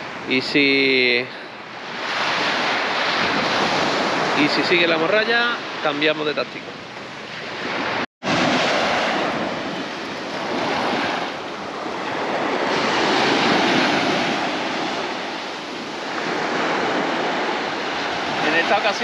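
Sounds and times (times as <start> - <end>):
waves breaking on beach: 0.0 - 19.0.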